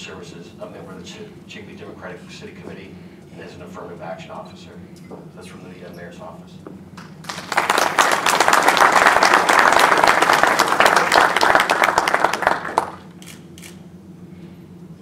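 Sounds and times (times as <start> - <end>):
audience applauding: 7.2 - 13.1.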